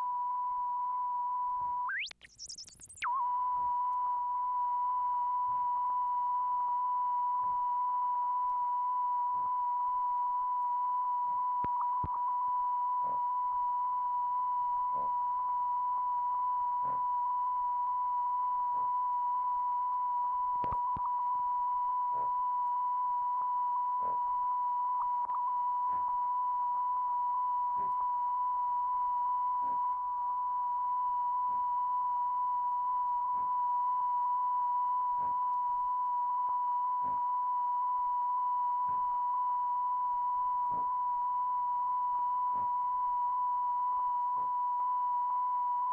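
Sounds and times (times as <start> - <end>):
electronic test tone: 0.0 - 45.9.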